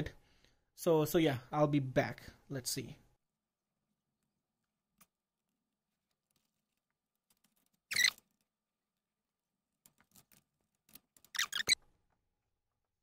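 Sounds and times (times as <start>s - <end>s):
parts clattering: 4.6s - 8.6s.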